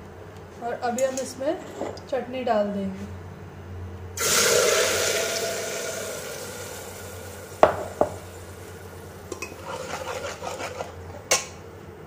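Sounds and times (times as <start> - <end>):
utensil tapping on pot: 7.6 - 8.2.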